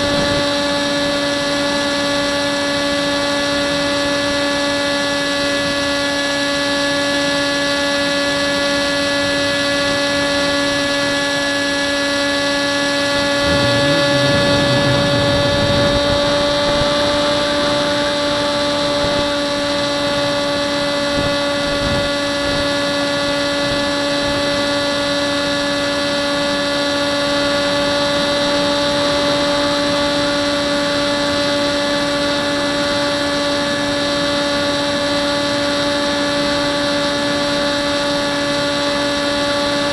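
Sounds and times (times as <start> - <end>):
model plane motor whine: 0.0 - 39.9
wind buffeting microphone: 13.2 - 17.8.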